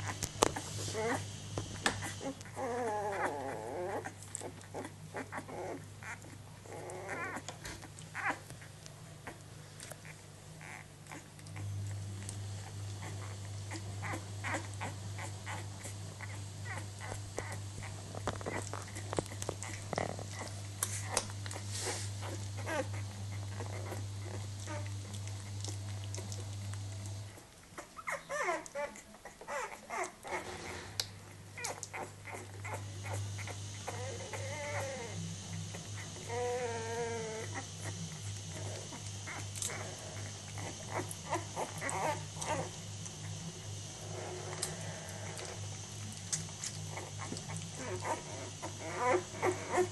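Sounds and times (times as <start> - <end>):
puppy squeaks and whimpers: 0.0 - 1.3, 2.0 - 9.4, 10.0 - 11.4, 12.6 - 26.2, 27.7 - 42.8, 46.6 - 49.9
steady low hum: 0.0 - 49.9
puppies suckling wet smacking: 7.4 - 30.4, 31.0 - 34.9, 37.4 - 43.2, 44.5 - 49.9.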